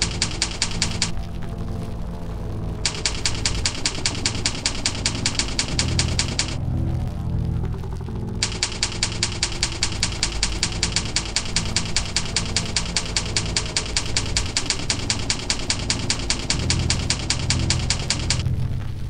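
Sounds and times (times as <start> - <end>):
typewriter keys clicking: 0.0 - 1.2, 2.8 - 6.6, 8.4 - 18.4
low background music: 0.0 - 19.0.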